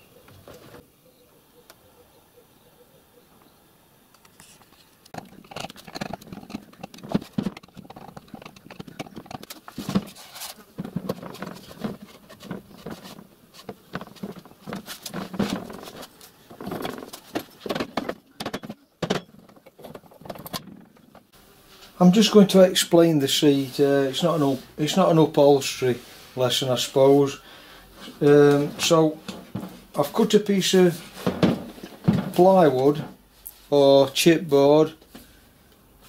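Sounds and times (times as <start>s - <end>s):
trolley clunking and rattling: 5.2s - 21.3s, 28.2s - 30.4s, 31.0s - 33.1s.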